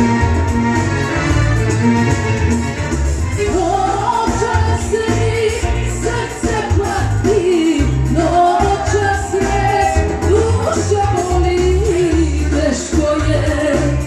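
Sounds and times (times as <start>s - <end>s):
backing music with pulsing bass: 0.0s - 14.0s
woman singing into microphone: 3.4s - 14.0s.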